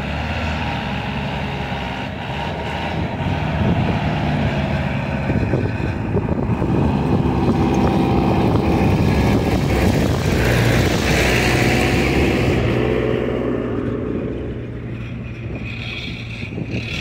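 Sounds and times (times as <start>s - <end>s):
engine running steadily: 0.0s - 17.0s.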